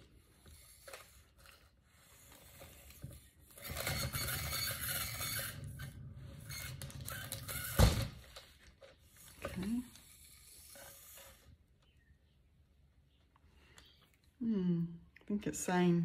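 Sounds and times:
turntable whirring and rubbing: 0:02.1 - 0:11.6.

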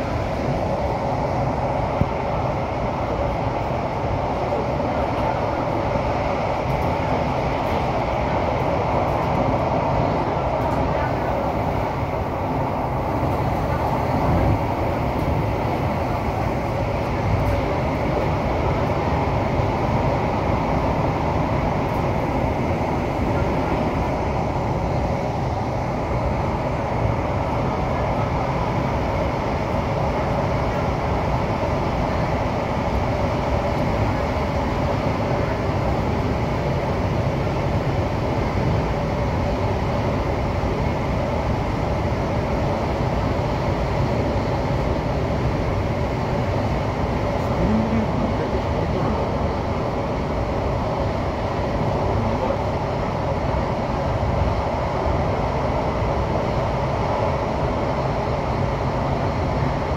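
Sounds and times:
metro train running through tunnel: 0:00.0 - 0:59.9.

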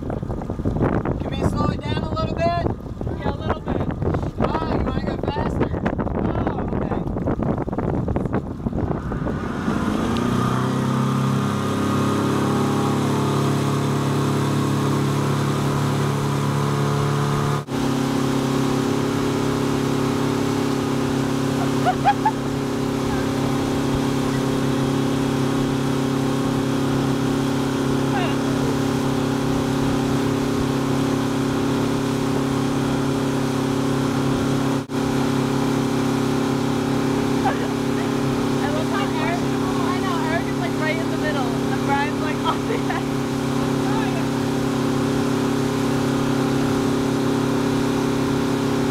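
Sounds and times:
wind rushing: 0:00.0 - 0:14.3
motorboat engine: 0:00.0 - 0:48.9
wake water rushing: 0:00.0 - 0:48.9.

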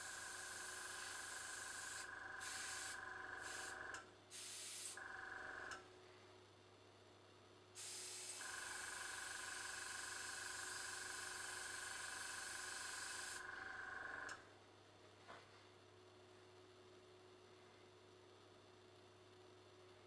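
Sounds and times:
airbrush air hiss: 0:00.0 - 0:05.0, 0:07.8 - 0:08.5, 0:11.8 - 0:13.4
compressor whine and hum: 0:00.0 - 0:20.0.

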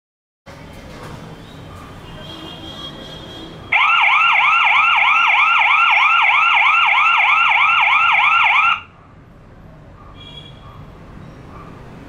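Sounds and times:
electronic siren whooping: 0:03.7 - 0:08.9.

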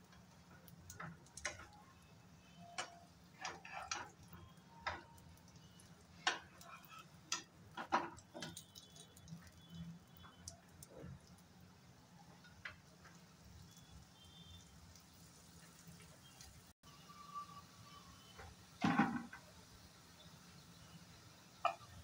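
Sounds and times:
spatula clicking on frying pan: 0:06.2 - 0:06.6.

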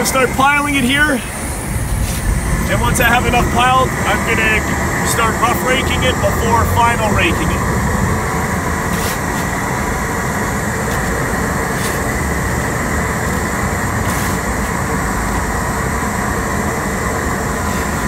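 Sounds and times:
steady mechanical drone: 0:00.0 - 0:18.0
shovel scraping asphalt: 0:01.9 - 0:02.3, 0:08.9 - 0:09.5, 0:11.7 - 0:12.1, 0:14.0 - 0:14.5.

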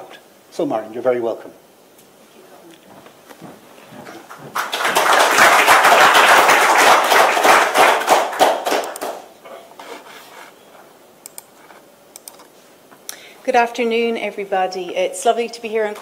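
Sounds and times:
audience applauding: 0:04.0 - 0:09.3
faint clicks: 0:11.2 - 0:11.5, 0:12.1 - 0:13.2.

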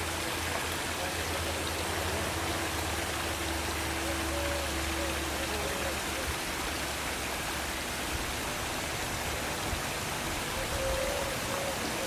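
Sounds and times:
waterfall splashing into stream: 0:00.0 - 0:12.0.

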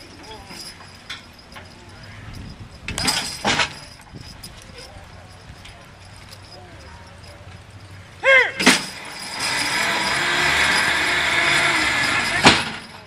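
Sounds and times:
person shouting a command: 0:08.2 - 0:08.7.

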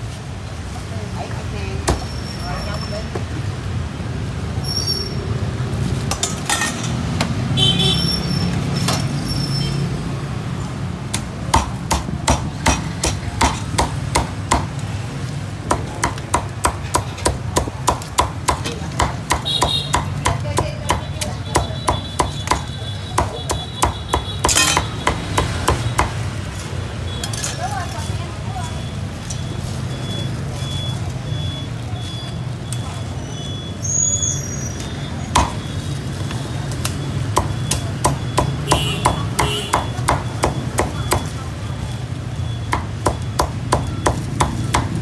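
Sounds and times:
cleaver chopping meat: 0:11.1 - 0:14.8, 0:15.6 - 0:26.3, 0:35.3 - 0:35.6, 0:36.8 - 0:41.4, 0:42.7 - 0:45.0.

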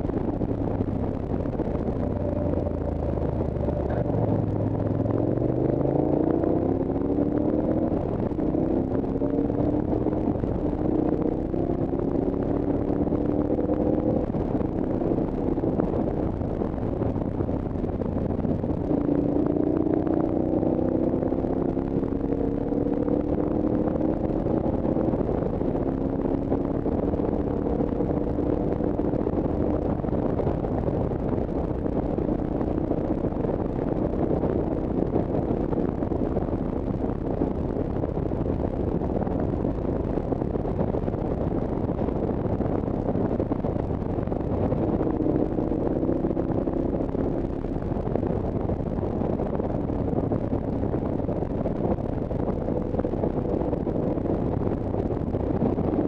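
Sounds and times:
vehicle engine accelerating: 0:00.0 - 0:56.0
wind and road noise: 0:00.0 - 0:56.0.

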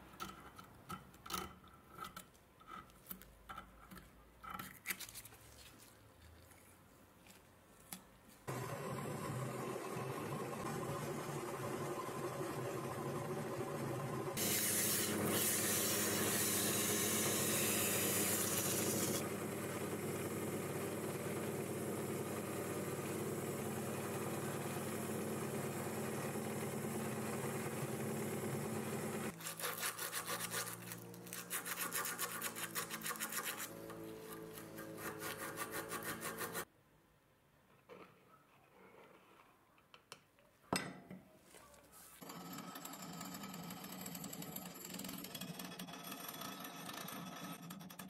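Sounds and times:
abrasive pad scrubbing steel rod: 0:29.4 - 0:36.7.

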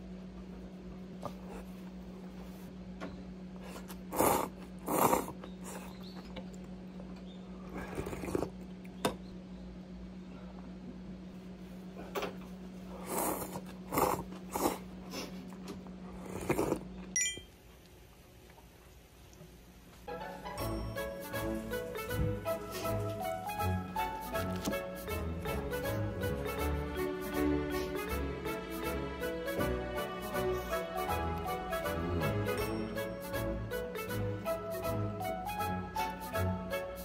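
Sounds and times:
steady low hum: 0:00.0 - 0:37.0
noodles being slurped: 0:03.7 - 0:06.0, 0:07.7 - 0:08.8, 0:12.9 - 0:15.5, 0:16.1 - 0:17.0.

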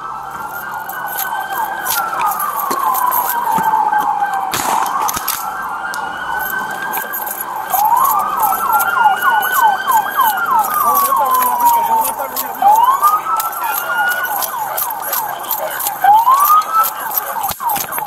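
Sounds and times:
police siren wailing: 0:00.0 - 0:18.0
siren warble: 0:00.0 - 0:18.0
shotgun bang: 0:04.5 - 0:05.0.

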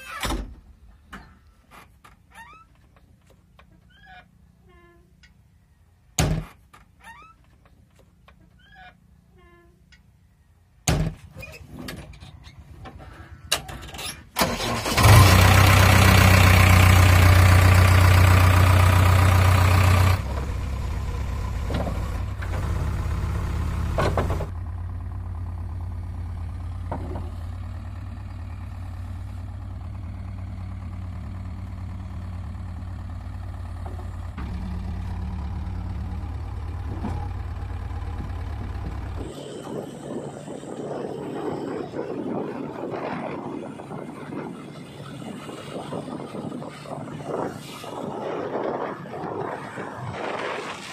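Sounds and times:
cab door shutting: 0:06.2 - 0:06.6
diesel engine starting and idling: 0:12.1 - 0:50.6.

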